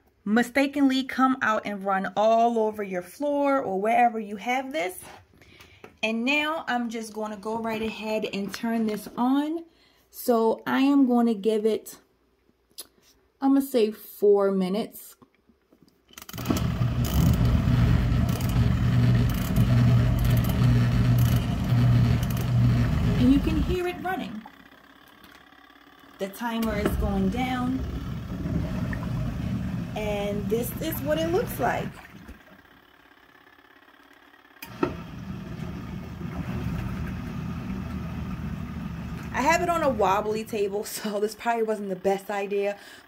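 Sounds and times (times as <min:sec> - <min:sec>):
washing machine motor humming: 0:16.2 - 0:43.0
clothes agitating in water: 0:30.5 - 0:32.5.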